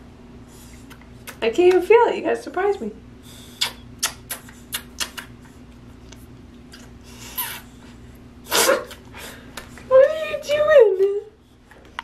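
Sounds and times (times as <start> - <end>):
electric fan humming: 0.0 - 12.0
toddler kissing lip smacks: 0.9 - 1.4, 3.6 - 5.4.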